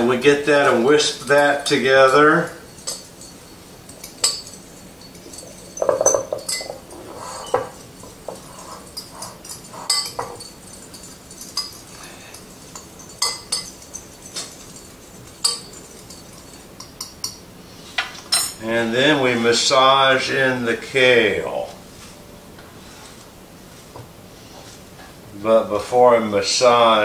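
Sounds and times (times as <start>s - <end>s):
whisk clinking against bowl: 0.6s - 17.5s.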